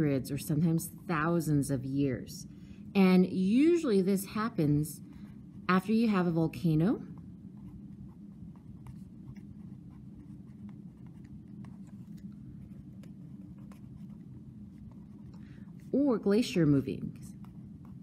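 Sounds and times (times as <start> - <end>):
steady low hum: 0.0 - 18.0
pen scratching on paper: 5.7 - 18.0.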